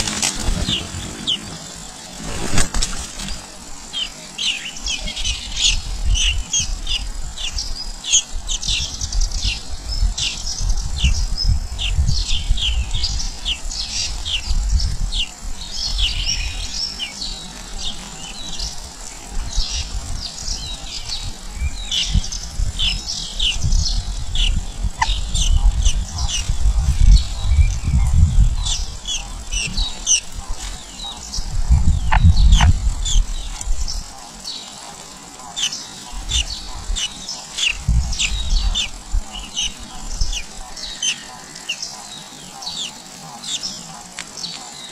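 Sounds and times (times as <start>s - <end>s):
nestlings chirping: 11.8s - 44.9s.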